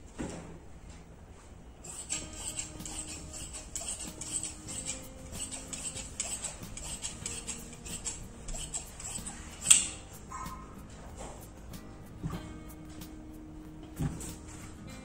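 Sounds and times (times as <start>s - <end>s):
scissors snipping fabric: 1.9s - 10.1s.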